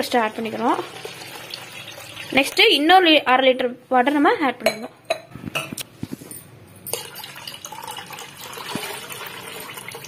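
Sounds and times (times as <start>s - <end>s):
water pouring into a bowl: 0.4s - 2.6s, 6.9s - 10.0s.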